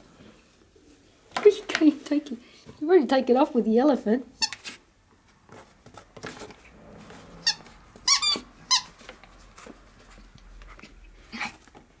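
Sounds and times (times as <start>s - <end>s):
squeaky toy squeaking: 7.4s - 9.0s.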